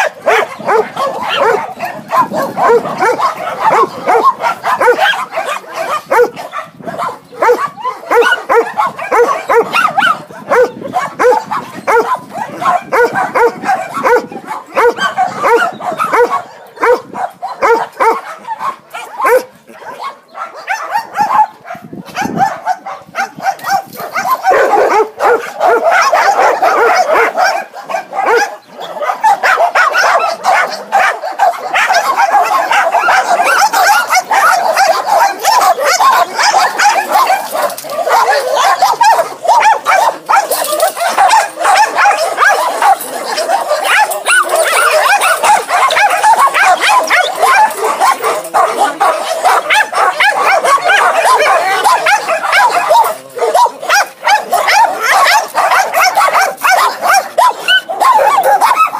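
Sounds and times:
many dogs barking: 0:00.0 - 0:58.9.

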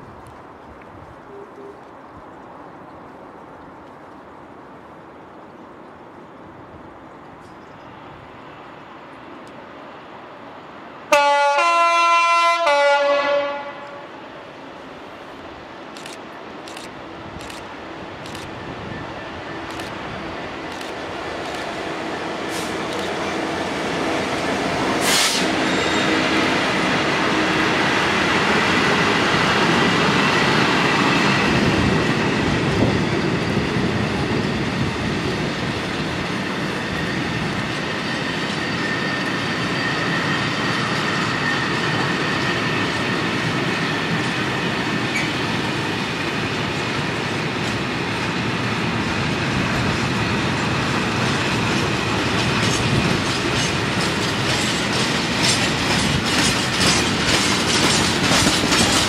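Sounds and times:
freight train rumbling: 0:04.6 - 0:59.0
wheels clacking over rail joints: 0:51.1 - 0:59.0.

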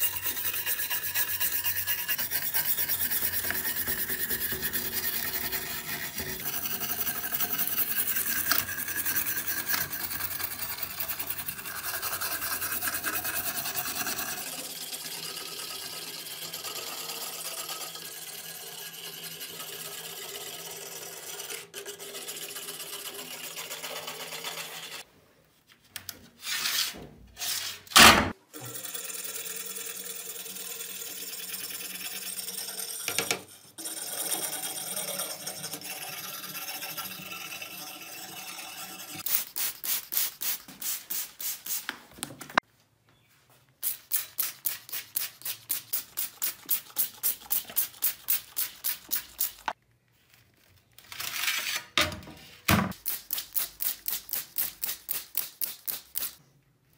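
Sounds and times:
wire brush scrubbing metal: 0:00.0 - 0:25.0, 0:29.0 - 0:41.8, 0:43.8 - 0:49.8
loud scrapes: 0:26.4 - 0:28.0.

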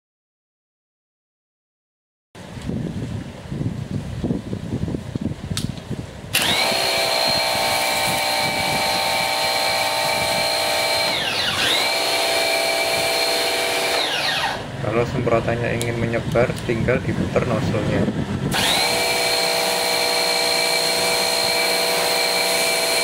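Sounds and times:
pressure washer motor whine: 0:06.3 - 0:15.0, 0:18.2 - 0:23.0.

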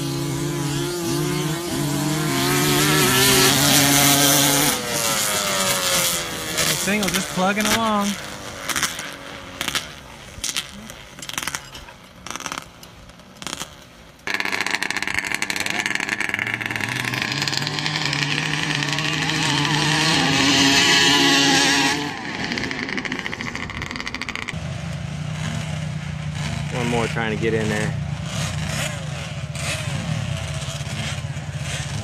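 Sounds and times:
off-road racing engines: 0:00.0 - 0:32.0.

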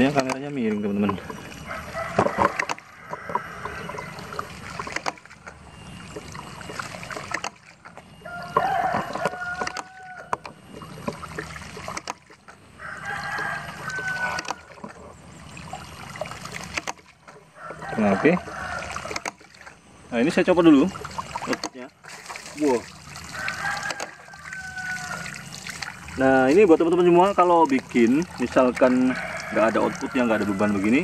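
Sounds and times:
water running and splashing: 0:00.0 - 0:31.0
rooster crowing: 0:01.6 - 0:04.2, 0:08.2 - 0:10.4, 0:12.8 - 0:14.8, 0:17.6 - 0:19.2, 0:23.3 - 0:25.5, 0:28.5 - 0:31.0.

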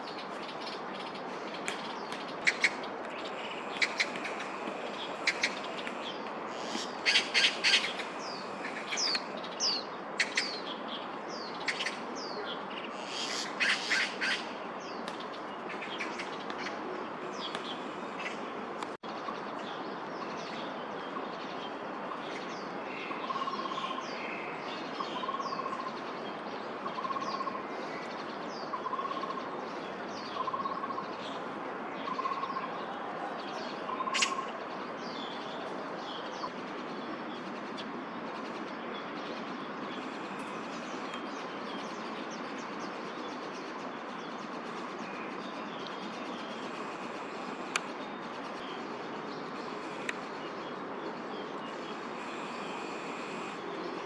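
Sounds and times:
magpie chatter: 0:06.5 - 0:09.2.

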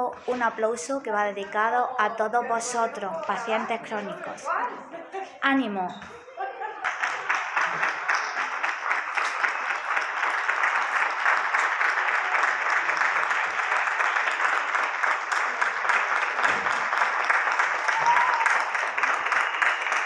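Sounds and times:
crowd applause: 0:06.4 - 0:20.0.

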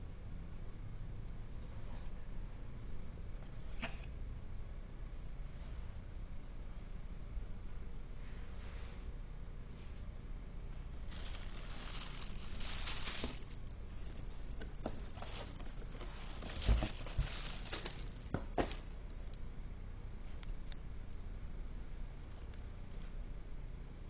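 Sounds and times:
wrapping sheet rustling: 0:11.0 - 0:18.9.

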